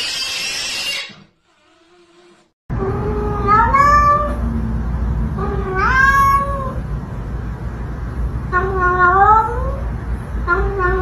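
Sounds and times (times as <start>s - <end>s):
cat meowing: 2.8s - 4.4s, 5.4s - 6.8s, 8.5s - 9.8s, 10.5s - 11.0s.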